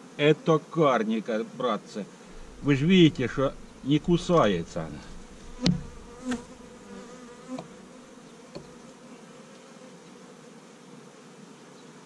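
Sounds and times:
bees buzzing: 0:00.0 - 0:12.0
light knocks: 0:02.3 - 0:06.5, 0:08.5 - 0:08.8.

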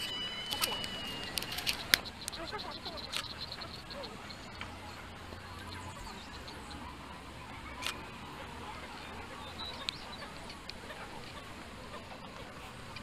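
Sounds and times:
faint bird chirps: 0:00.0 - 0:13.0
outdoor background noise: 0:00.0 - 0:13.0
camera shutter clicking: 0:00.5 - 0:02.1.

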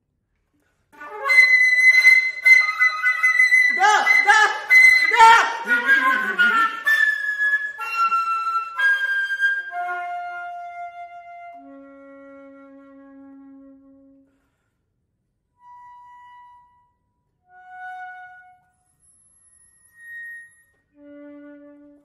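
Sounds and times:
concert flute notes: 0:01.0 - 0:14.6.

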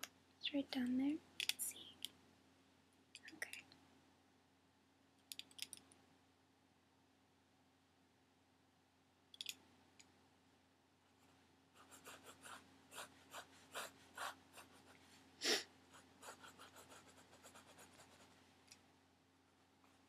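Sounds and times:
pencil sketching on paper: 0:11.2 - 0:15.0, 0:15.9 - 0:18.3.

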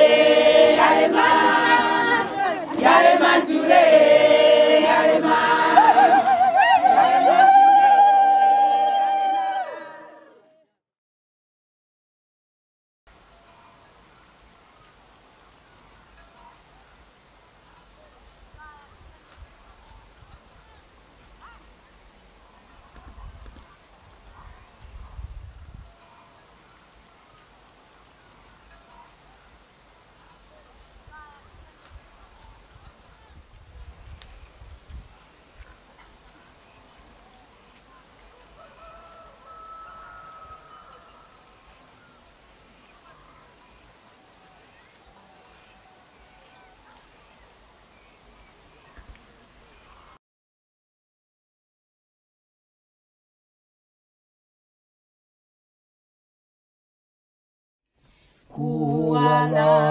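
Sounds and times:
insect chirping: 0:13.1 - 0:45.1.

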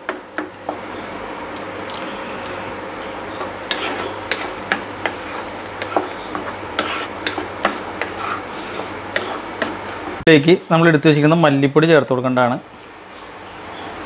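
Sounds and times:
paste frying hiss: 0:03.4 - 0:10.2
spatula scraping paste in pan: 0:03.4 - 0:10.2.

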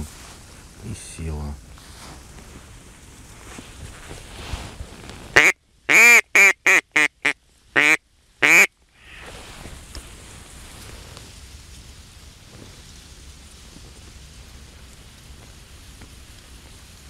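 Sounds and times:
duck call quacks: 0:05.4 - 0:09.2.

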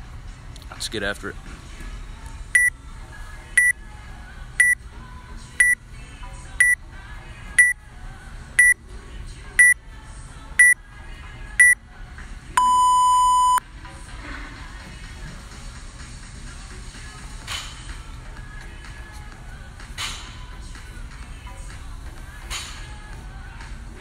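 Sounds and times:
long lower beep: 0:12.6 - 0:13.6
short high timer beeps: 0:12.6 - 0:13.6.

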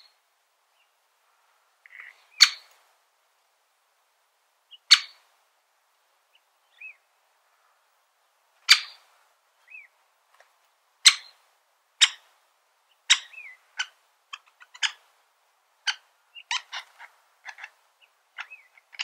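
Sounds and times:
woodpecker sharp kik calls: 0:01.8 - 0:02.8, 0:04.7 - 0:05.2, 0:08.6 - 0:09.9, 0:11.0 - 0:11.4, 0:12.0 - 0:12.3, 0:12.9 - 0:15.1, 0:15.8 - 0:19.0.

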